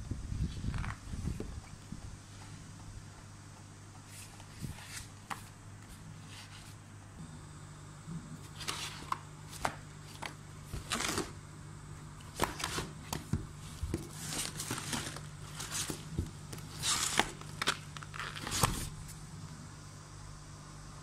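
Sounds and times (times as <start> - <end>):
steady low hum: 0.0 - 21.0
paper rustling and knocking: 12.3 - 19.2.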